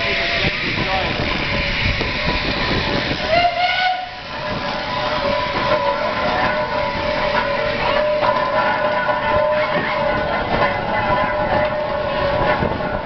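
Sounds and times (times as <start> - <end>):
steam engine running: 0.0 - 13.0
steam whistle: 1.7 - 10.1.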